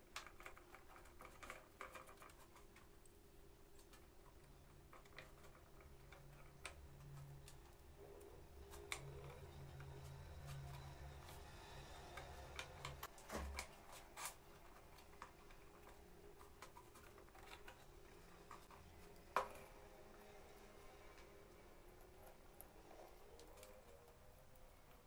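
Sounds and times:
small wooden parts clicking: 0:00.0 - 0:19.9
faint low hum: 0:00.1 - 0:25.0.

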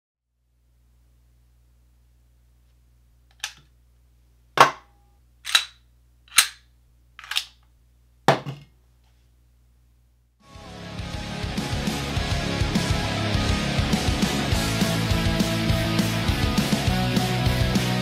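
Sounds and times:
music: 0:10.4 - 0:18.0.

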